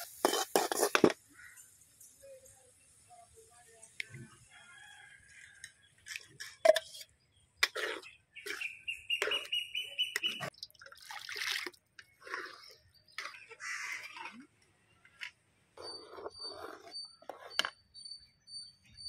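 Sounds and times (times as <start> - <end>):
wet slopping and sloshing: 10.5 - 12.4.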